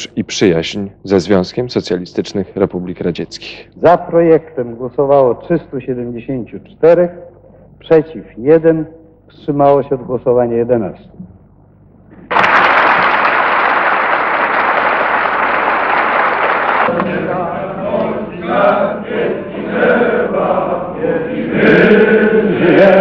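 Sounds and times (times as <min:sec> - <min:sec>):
crowd applauding: 0:12.3 - 0:17.0
crowd chanting: 0:15.2 - 0:23.0.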